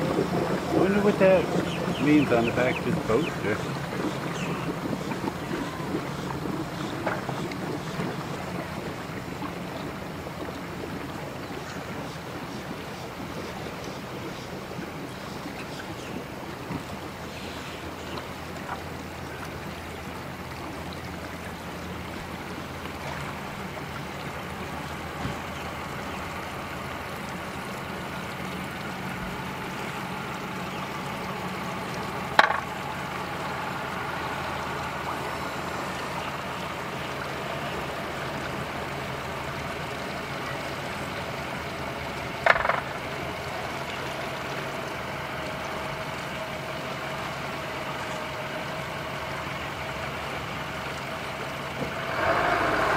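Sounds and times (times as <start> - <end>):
outboard motor idling: 0.0 - 52.9
sharp knocks: 32.4 - 32.7.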